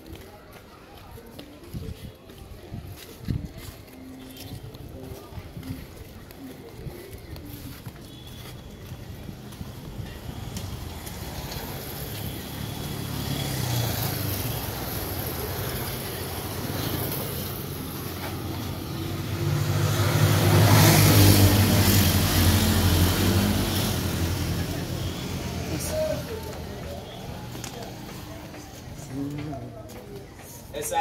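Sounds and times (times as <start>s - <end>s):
vehicle engine passing by: 10.4s - 29.6s.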